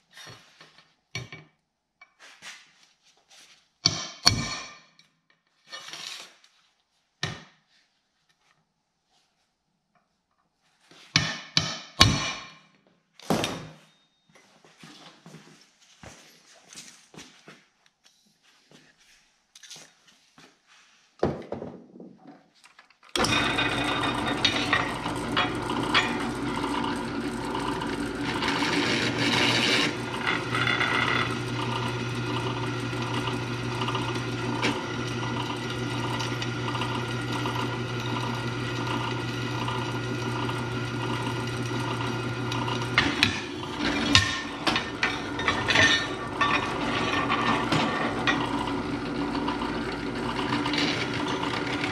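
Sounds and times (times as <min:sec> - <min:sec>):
drill press drilling steel: 0:23.1 - 0:51.9.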